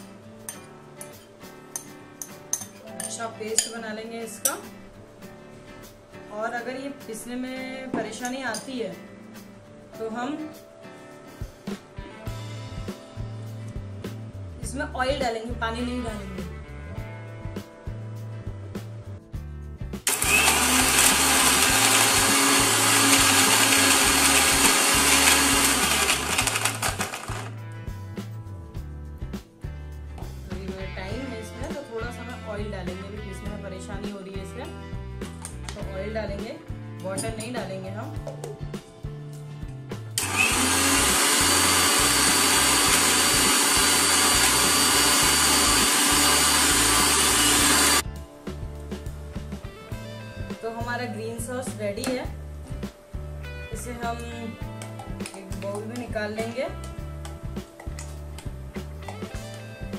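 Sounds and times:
mixer grinder running: 20.1 - 27.5, 40.2 - 48.0.

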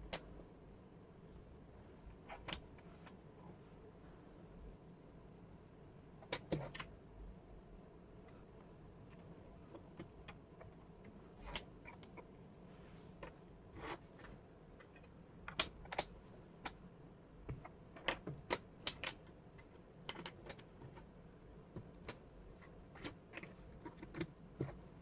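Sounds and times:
wooden puzzle pieces clicking: 11.4 - 12.3, 14.8 - 16.8, 17.5 - 21.1, 21.8 - 24.8.

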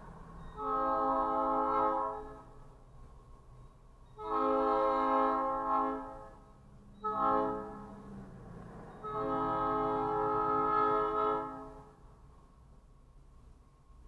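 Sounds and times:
locomotive air horn blasts: 0.6 - 2.6, 4.2 - 8.1, 9.0 - 12.0.

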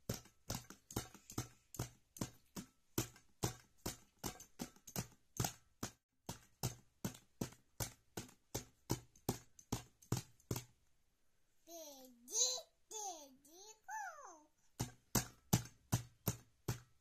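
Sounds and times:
hands slapping metal tins: 0.0 - 10.8, 14.7 - 17.0.

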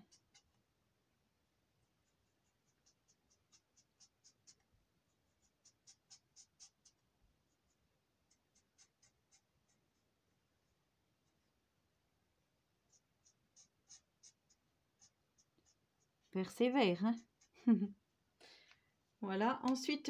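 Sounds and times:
marker scratching on paper: 0.0 - 0.6, 1.8 - 10.1, 12.8 - 17.7.

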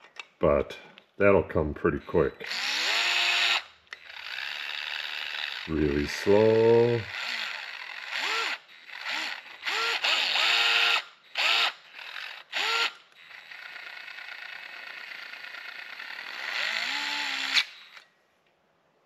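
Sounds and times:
electric screwdriver motor spinning: 2.4 - 18.1.

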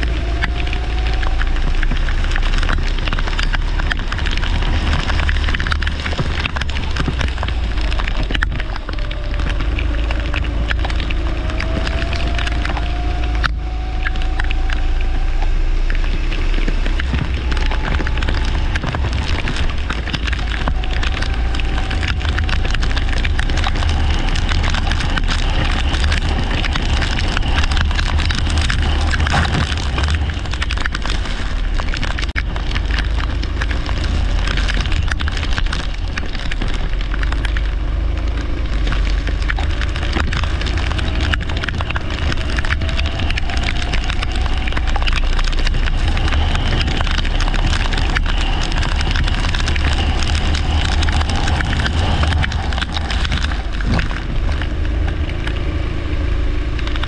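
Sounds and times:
crackling rattle: 0.0 - 57.0
wind buffeting: 0.0 - 57.0.

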